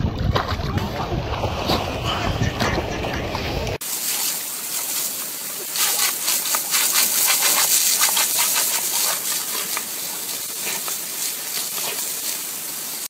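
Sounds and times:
water jet hissing and splattering: 3.7 - 13.0
dog biting at water splashes: 5.7 - 12.4.

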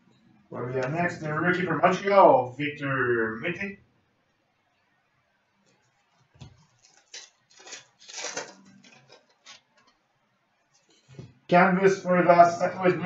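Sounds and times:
foil wrapper crinkling: 6.6 - 9.9.

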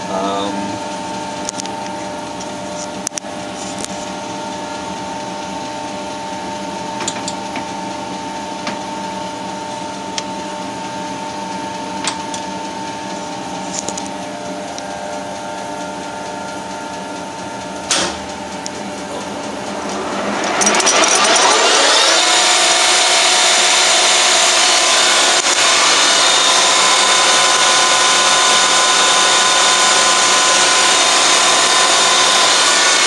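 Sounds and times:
lathe whining: 0.0 - 33.0
sharp knock: 17.9 - 18.2.

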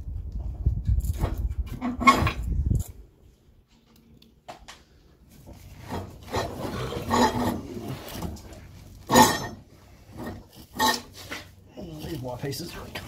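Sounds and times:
scraping against concrete: 5.3 - 13.0.

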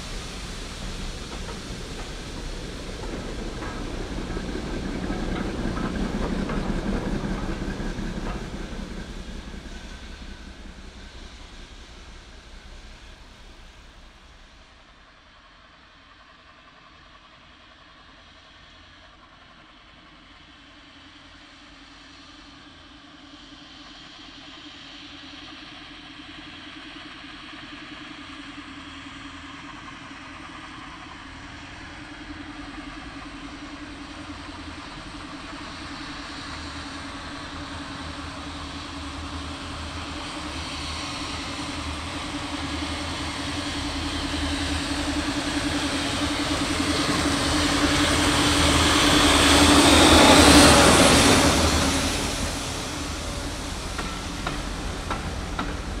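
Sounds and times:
train wheels rolling on rails: 0.0 - 14.9, 29.7 - 56.0
steam locomotive exhaust chatter: 0.0 - 15.7, 22.0 - 56.0.

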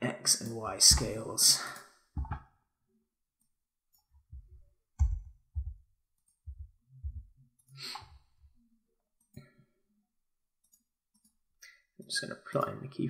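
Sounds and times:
low desk thumps: 2.2 - 2.5.

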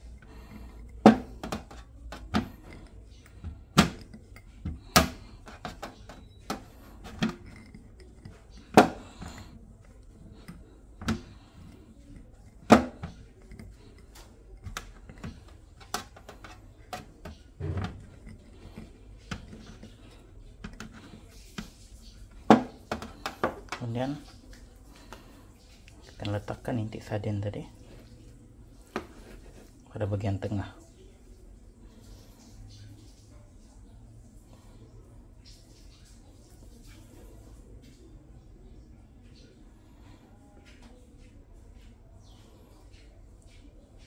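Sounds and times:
plastic cup knocking metal tray: 1.0 - 2.8, 3.4 - 7.5, 8.3 - 9.4, 12.6 - 13.2, 14.6 - 18.2, 22.5 - 23.8.

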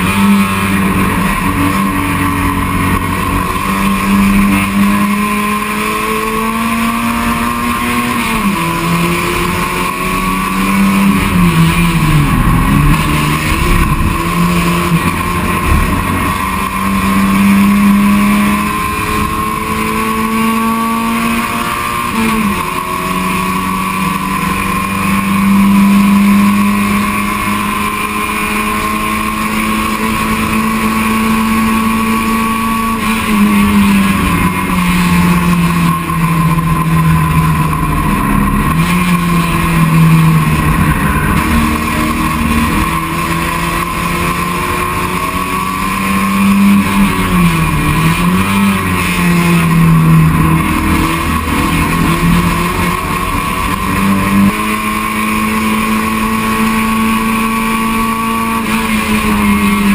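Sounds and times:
race car engine at high revs: 0.0 - 59.9
road and wind noise: 0.0 - 59.9.

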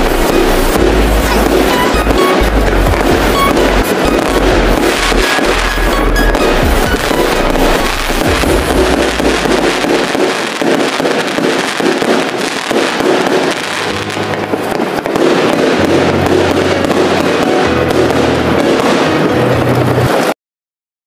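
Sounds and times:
music with bass line: 0.0 - 10.2
fireworks crackling: 0.0 - 20.4.

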